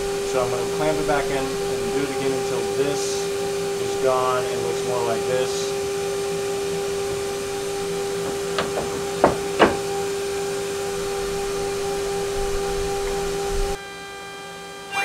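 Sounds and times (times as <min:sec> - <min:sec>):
motor humming steadily: 0:00.0 - 0:13.8
board and clamps knocking on table: 0:07.2 - 0:10.1.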